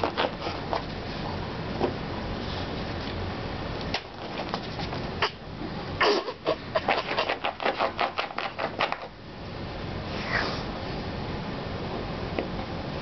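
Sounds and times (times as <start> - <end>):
dog sniffing and scraping: 0.0 - 1.4, 4.2 - 5.1, 6.0 - 9.1.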